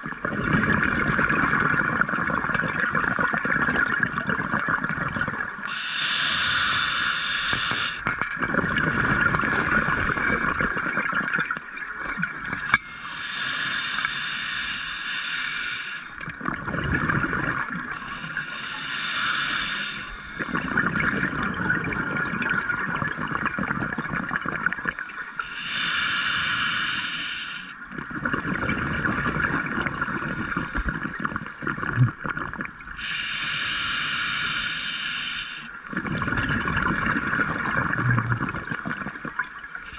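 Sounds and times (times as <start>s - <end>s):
exhaled bubbles gushing: 0.0s - 5.7s, 7.6s - 12.8s, 16.1s - 18.4s, 20.4s - 25.2s, 27.8s - 33.0s, 35.8s - 39.9s
regulator breathing underwater: 5.6s - 8.1s, 12.6s - 16.3s, 17.0s - 21.3s, 24.4s - 32.2s, 32.9s - 39.9s
steady hiss: 5.7s - 8.0s, 12.8s - 16.2s, 18.0s - 20.7s, 25.1s - 27.8s, 33.0s - 35.8s.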